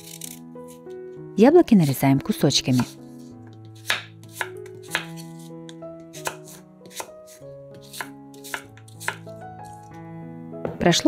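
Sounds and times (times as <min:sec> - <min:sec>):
soft background music: 0:00.0 - 0:11.0
knife tapping on wooden cutting board: 0:03.8 - 0:05.1.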